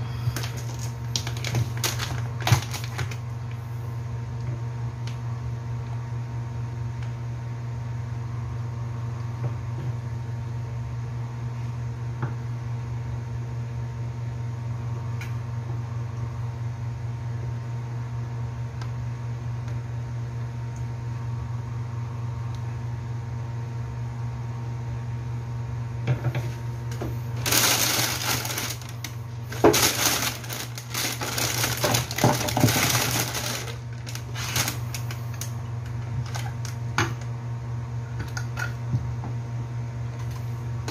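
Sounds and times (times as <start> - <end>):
low steady hum: 0.0 - 40.9
loud rustling and scraping: 27.4 - 35.1.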